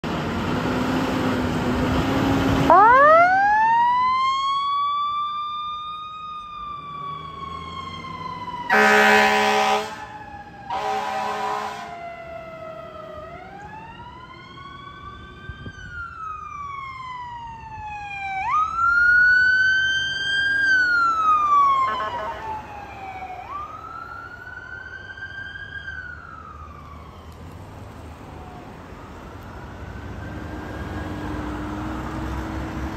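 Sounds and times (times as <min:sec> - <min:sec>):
road traffic noise: 0:00.0 - 0:32.9
electronic sirens wailing: 0:02.2 - 0:32.8
air horn blast: 0:08.7 - 0:10.1, 0:10.7 - 0:12.0, 0:21.9 - 0:22.5.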